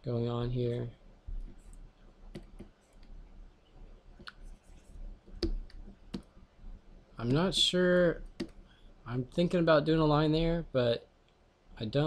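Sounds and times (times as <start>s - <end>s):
faint stylus clicks and taps: 5.4s - 6.3s, 8.3s - 8.6s.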